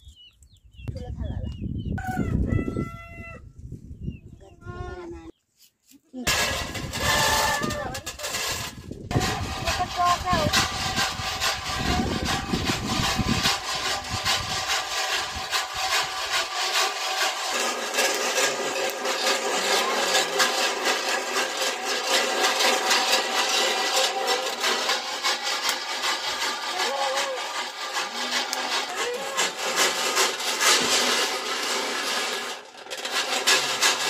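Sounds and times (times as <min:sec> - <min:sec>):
corn rattling in metal box: 0:06.3 - 0:34.0.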